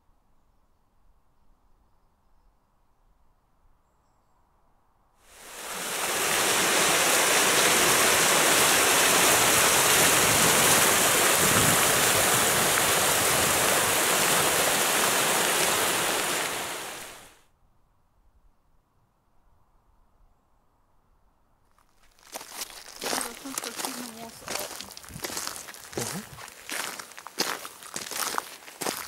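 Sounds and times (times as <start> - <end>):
water rushing over rocks: 5.3 - 17.4.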